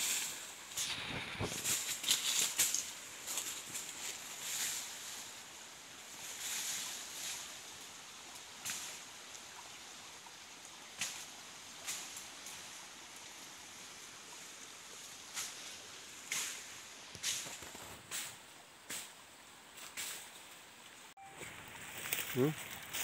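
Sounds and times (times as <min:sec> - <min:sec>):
dry leaves rustling and crackling: 0:00.0 - 0:07.9, 0:15.2 - 0:19.2, 0:21.3 - 0:23.0.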